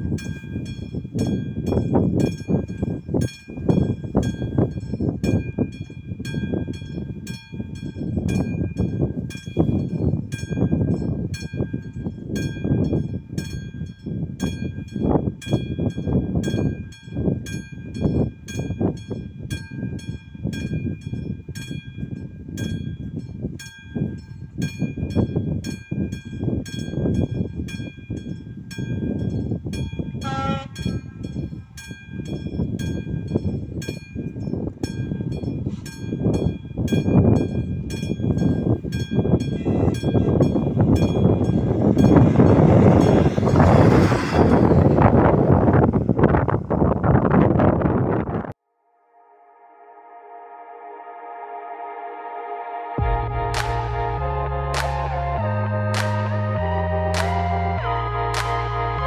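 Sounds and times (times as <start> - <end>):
low gusty rumble: 0.0 - 48.6, 53.0 - 59.0
train horn blast: 30.2 - 31.2, 39.6 - 40.6, 49.2 - 59.0.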